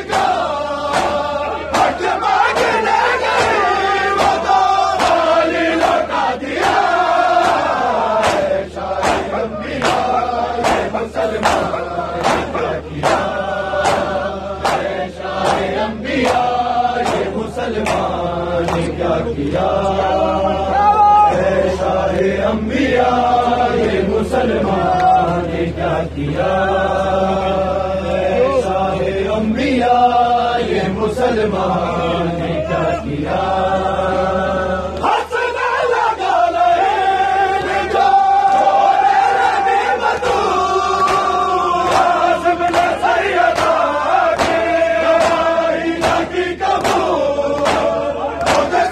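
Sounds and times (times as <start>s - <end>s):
men chanting together: 0.0s - 48.9s
hands slapping bare chests: 0.1s - 2.8s, 4.2s - 5.2s, 6.6s - 18.1s, 41.0s - 44.6s, 45.2s - 48.8s.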